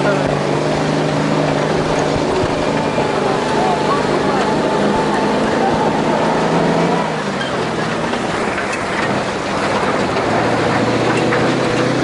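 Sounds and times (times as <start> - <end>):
steady rush of noise: 0.0 - 12.0
truck engine running: 0.0 - 12.0.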